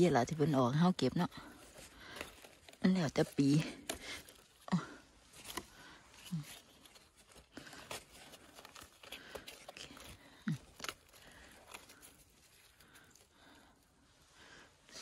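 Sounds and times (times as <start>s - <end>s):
mushrooms tearing off wood: 0.0s - 13.8s
small clicks and scrapes: 1.6s - 13.3s.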